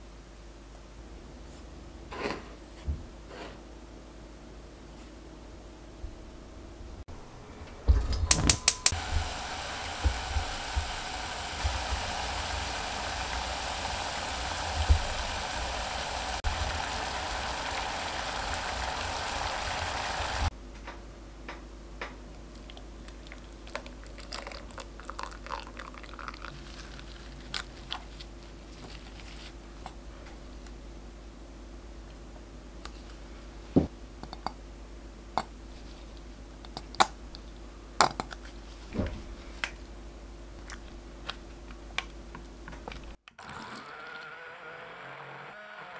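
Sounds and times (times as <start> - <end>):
syrup boiling and bubbling: 8.9 - 20.5, 22.5 - 28.2.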